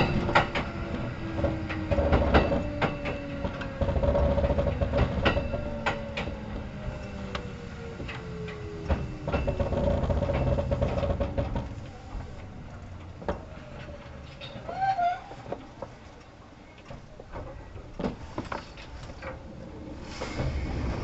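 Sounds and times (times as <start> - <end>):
train motor whine: 0.0 - 14.1
train running rumble: 0.0 - 16.1, 16.9 - 21.0
wheels clicking over rail joints: 0.0 - 21.0.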